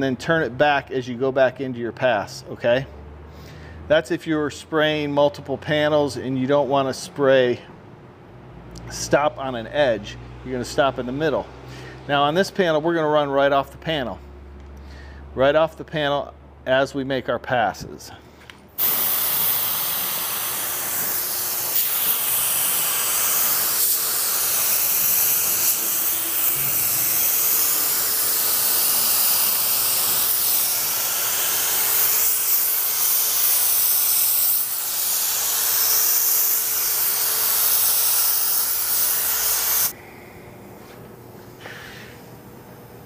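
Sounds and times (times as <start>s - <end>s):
spray gun hissing: 18.8s - 40.0s.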